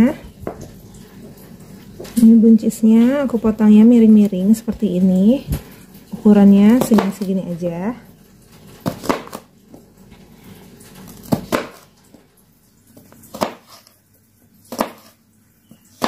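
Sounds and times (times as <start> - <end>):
knife cutting on plastic board: 6.8 - 7.3, 8.8 - 9.5, 11.1 - 11.9, 13.0 - 14.0, 14.7 - 15.2.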